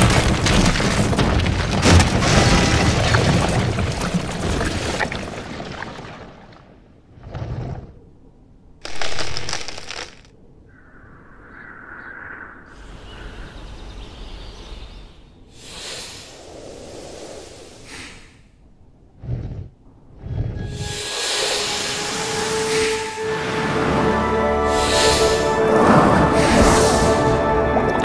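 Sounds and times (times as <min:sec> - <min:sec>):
sharp cracking bursts: 0:08.8 - 0:10.3
soft noisy swells: 0:20.7 - 0:27.6.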